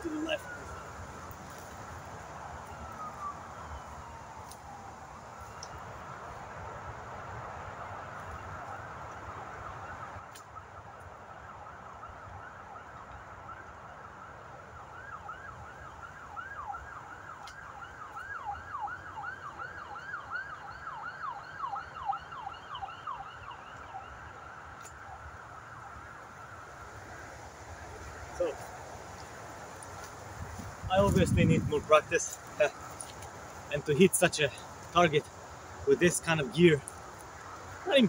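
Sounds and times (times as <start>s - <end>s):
distant siren: 0.0s - 38.0s
faint sharp clicks: 5.5s - 5.8s, 17.4s - 17.6s.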